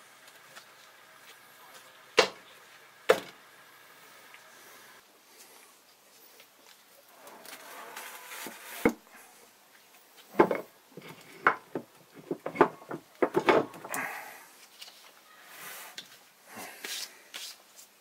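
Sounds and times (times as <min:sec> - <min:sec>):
metal motor scraping on workbench: 0:07.2 - 0:08.9
clunks and knocks of metal: 0:10.3 - 0:14.0.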